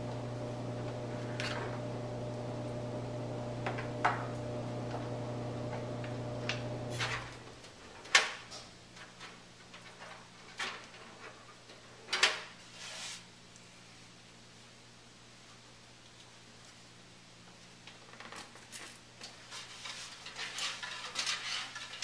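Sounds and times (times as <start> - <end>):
steady electrical hum: 0.0 - 20.4.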